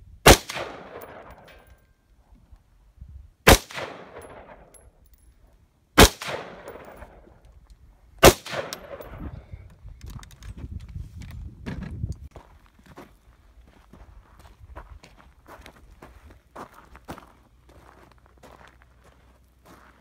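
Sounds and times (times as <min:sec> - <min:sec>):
rifle shots echoing: 0:00.2 - 0:01.6, 0:03.5 - 0:04.8, 0:06.0 - 0:07.4, 0:08.2 - 0:09.2.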